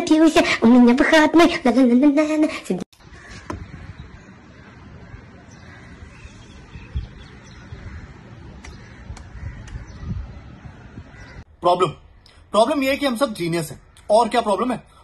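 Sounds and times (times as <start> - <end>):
crows cawing: 3.0 - 11.5
faint birds calling: 3.0 - 15.0.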